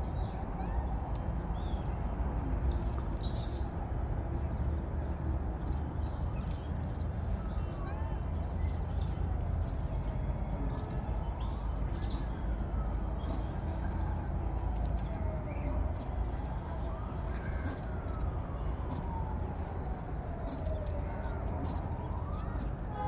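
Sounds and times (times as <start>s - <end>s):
distant siren wailing: 6.7s - 23.0s
bird chirps: 13.2s - 13.6s.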